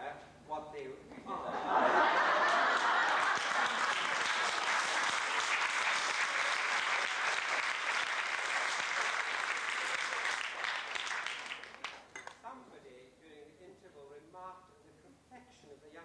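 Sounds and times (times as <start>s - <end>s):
audience applauding: 2.1s - 12.1s.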